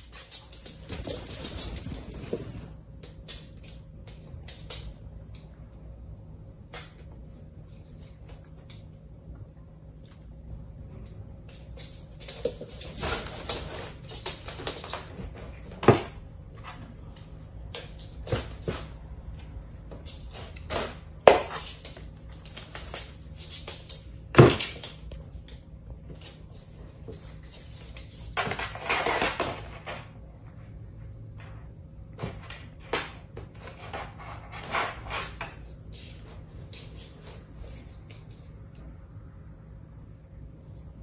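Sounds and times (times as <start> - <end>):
cardboard scraping and rustling: 11.8 - 17.0, 32.2 - 38.0.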